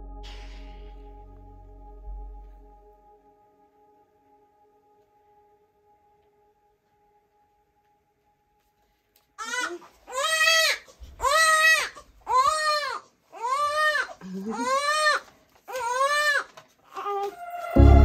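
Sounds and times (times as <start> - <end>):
newborn baby crying: 9.4 - 17.7.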